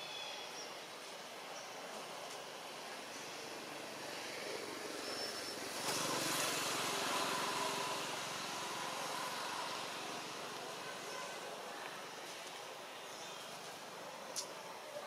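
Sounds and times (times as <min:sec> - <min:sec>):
passing motor engine: 0:03.8 - 0:11.6.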